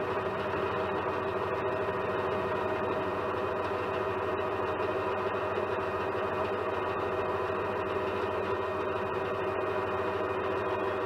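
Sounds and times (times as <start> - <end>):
metal lathe humming: 0.0 - 11.0.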